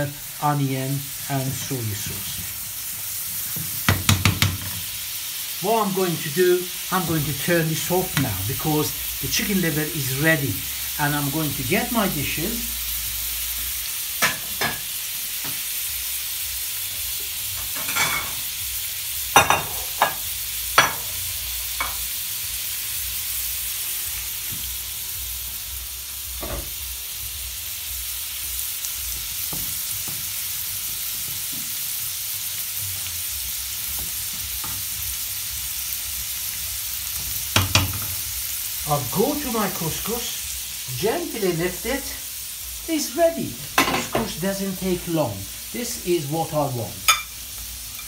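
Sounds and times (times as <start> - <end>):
food sizzling in frying pans: 0.0 - 48.0
plates and utensils clinking: 19.4 - 20.2, 47.1 - 48.0.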